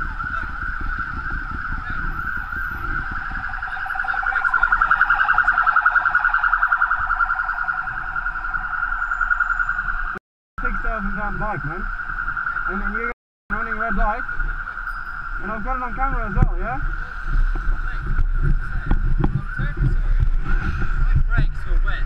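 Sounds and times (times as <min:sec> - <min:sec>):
emergency siren warbling wail: 0:00.0 - 0:17.4.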